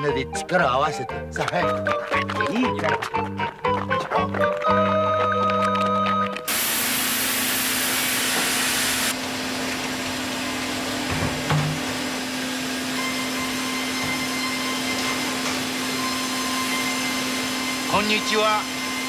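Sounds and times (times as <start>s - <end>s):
band saw cutting timber: 6.5s - 9.3s, 11.9s - 19.0s.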